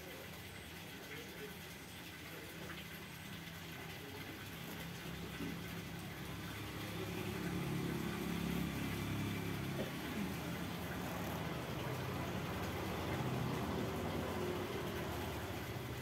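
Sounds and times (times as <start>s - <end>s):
engine idling: 4.1s - 16.0s.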